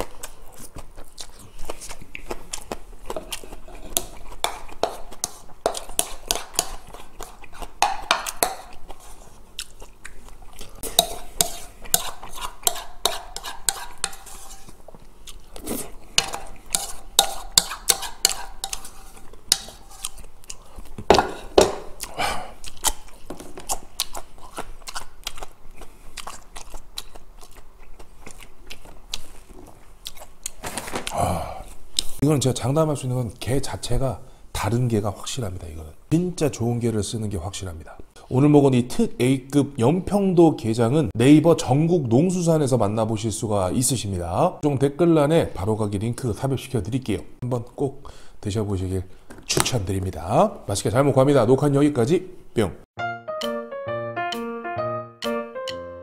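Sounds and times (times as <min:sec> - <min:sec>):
chewing food: 0:00.0 - 0:14.0, 0:14.7 - 0:21.1, 0:21.9 - 0:30.6
wooden spoon scraping plastic bowl: 0:10.9 - 0:14.8, 0:15.6 - 0:20.1.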